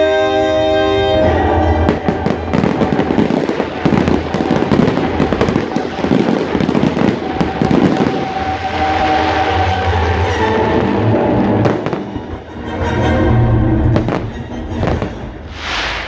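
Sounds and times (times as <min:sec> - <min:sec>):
steady musical tone: 0:00.0 - 0:16.0
fireworks launching and bursting: 0:01.8 - 0:12.5, 0:13.9 - 0:16.0.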